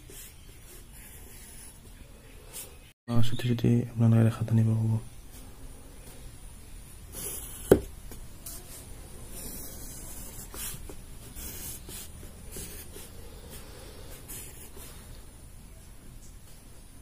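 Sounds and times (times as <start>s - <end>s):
pencil scratching on paper: 0.0s - 1.9s, 7.1s - 7.8s, 8.4s - 15.0s.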